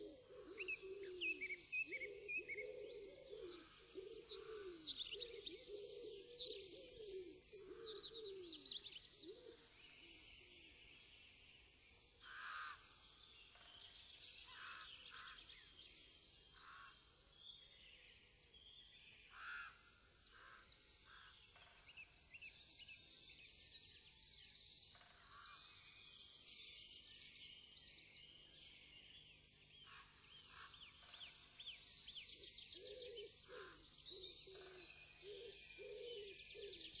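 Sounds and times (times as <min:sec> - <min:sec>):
dove cooing: 0:00.0 - 0:07.4, 0:35.2 - 0:36.8
small birds chirping: 0:00.6 - 0:37.0.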